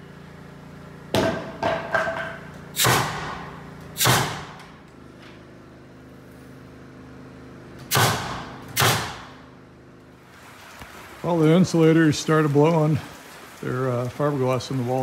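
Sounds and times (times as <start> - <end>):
nail gun shots echoing: 2.7 - 4.8, 7.8 - 9.5.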